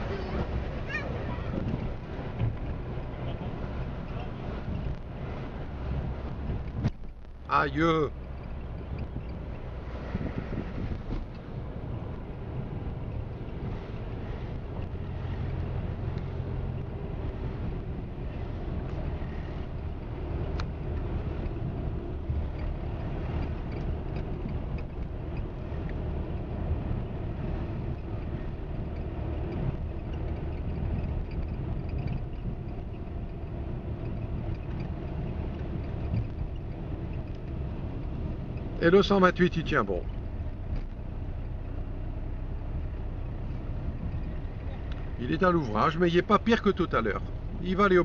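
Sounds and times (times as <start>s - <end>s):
wind on the microphone: 0.0s - 7.5s, 8.6s - 38.8s
moving vehicle running noise: 0.0s - 48.0s.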